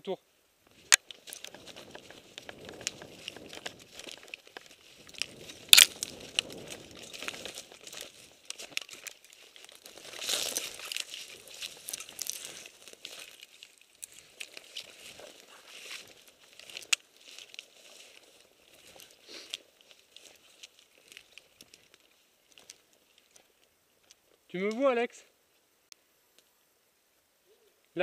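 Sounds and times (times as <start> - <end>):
brush rustling and crackling: 0.6 - 27.2
sharp crack: 5.6 - 6.6.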